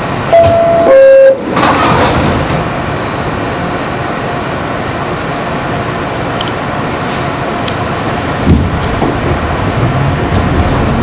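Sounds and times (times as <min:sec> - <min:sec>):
train running noise: 0:00.0 - 0:11.0
two-tone door chime: 0:00.3 - 0:01.4.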